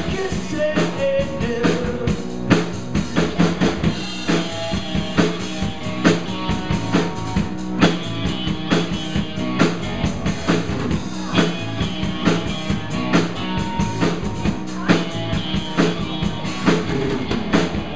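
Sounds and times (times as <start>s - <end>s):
drum kit: 0.0s - 17.9s
electric bass: 0.0s - 17.9s
electric guitar: 0.0s - 17.9s.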